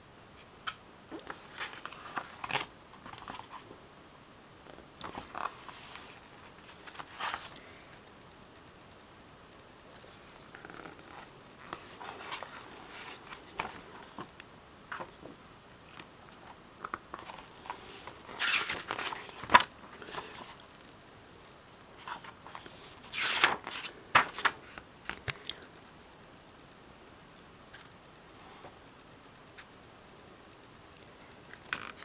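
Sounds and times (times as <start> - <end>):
book pages turning: 0.6 - 3.6, 4.7 - 7.6, 10.0 - 14.3, 15.9 - 20.9, 22.0 - 25.4.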